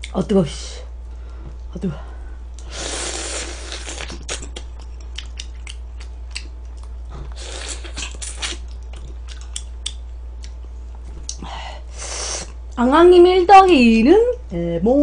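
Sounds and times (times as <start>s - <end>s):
breathing: 1.1s - 2.4s, 11.4s - 12.5s
chewing meat off a bone: 3.8s - 11.4s.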